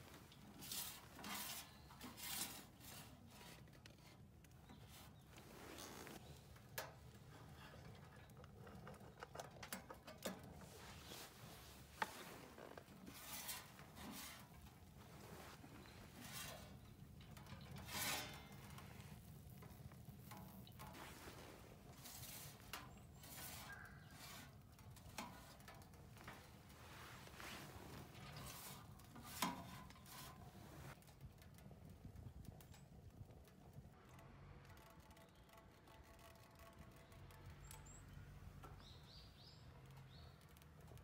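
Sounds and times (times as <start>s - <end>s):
gloved hands rubbing and scraping: 0.0s - 6.3s, 10.6s - 31.0s.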